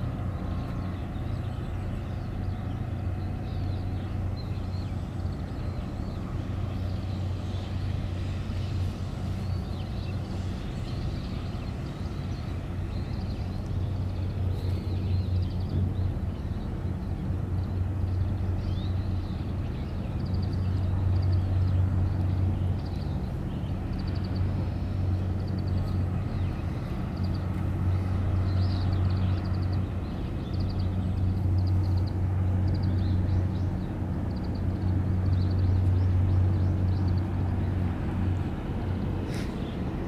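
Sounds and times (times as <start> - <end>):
low mechanical drone: 0.0 - 40.0.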